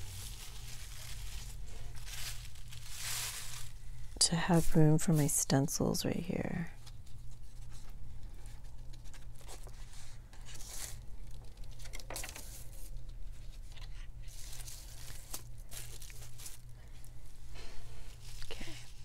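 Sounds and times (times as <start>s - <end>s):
paper rustling and crinkling: 0.0s - 4.9s, 6.8s - 19.0s
steady low hum: 12.5s - 19.0s.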